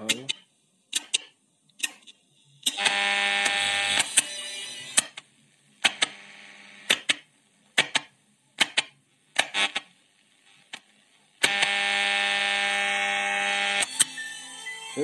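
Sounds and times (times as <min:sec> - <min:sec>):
radio loudspeaker output: 0:11.4 - 0:15.0.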